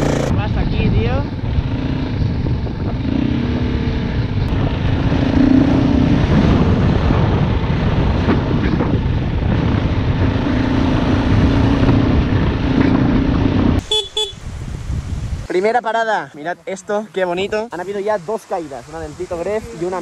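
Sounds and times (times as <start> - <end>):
dirt bike engine running: 0.0 - 14.6.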